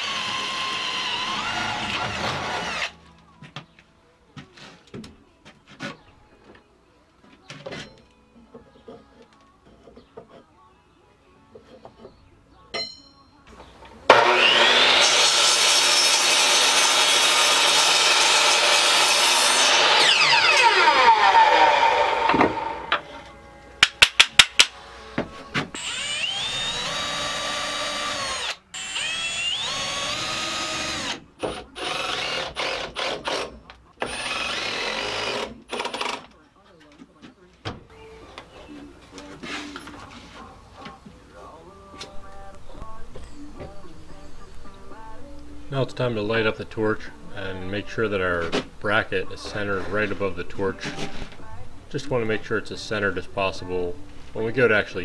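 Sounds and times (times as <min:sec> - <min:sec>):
cordless drill driving screws: 0:00.0 - 0:02.9, 0:19.6 - 0:22.9, 0:25.8 - 0:36.3
miter saw cutting a board: 0:00.0 - 0:03.0, 0:14.1 - 0:23.0, 0:25.8 - 0:36.2.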